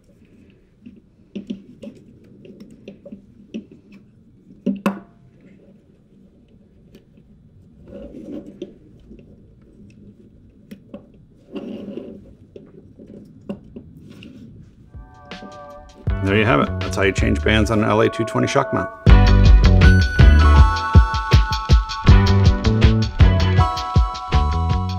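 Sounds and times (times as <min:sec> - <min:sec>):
rustling: 0:00.0 - 0:16.1.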